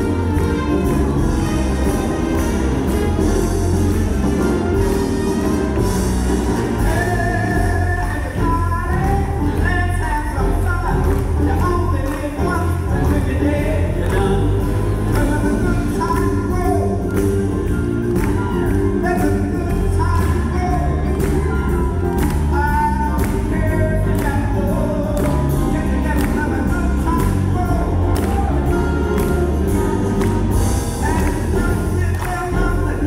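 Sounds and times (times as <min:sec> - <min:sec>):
big band playing: 0:00.0 - 0:33.0
drums keeping a steady beat: 0:00.0 - 0:33.0
man singing into a microphone: 0:06.8 - 0:17.1, 0:22.2 - 0:29.4, 0:31.0 - 0:33.0.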